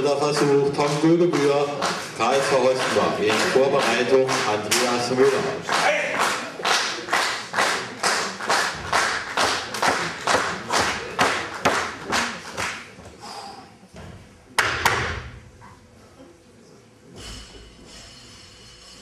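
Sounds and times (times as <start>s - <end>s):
audience clapping in unison: 0.0s - 13.0s.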